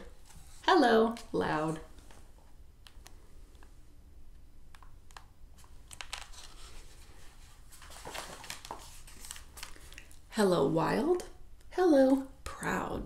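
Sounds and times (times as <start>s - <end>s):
paper pages rustling: 5.1s - 10.2s.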